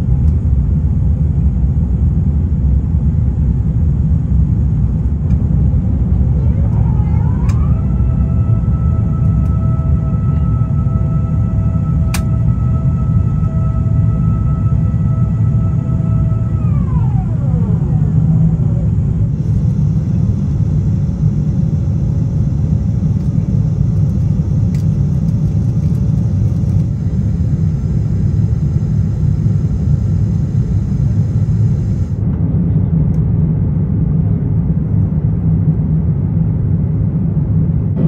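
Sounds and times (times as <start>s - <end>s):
airplane cabin engine rumble: 0.0s - 38.0s.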